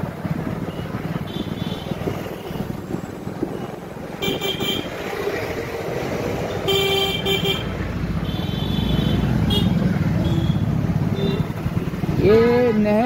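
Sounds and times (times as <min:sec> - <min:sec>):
engine and road rumble: 0:00.0 - 0:13.0
vehicle horns honking: 0:00.7 - 0:02.7, 0:04.2 - 0:05.0, 0:06.5 - 0:11.6.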